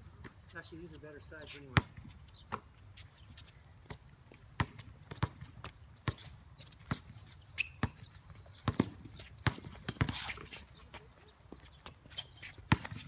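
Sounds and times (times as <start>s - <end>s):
footsteps on court: 0.2s - 13.0s
basketball bouncing on hard court: 3.9s - 10.5s, 12.6s - 13.0s.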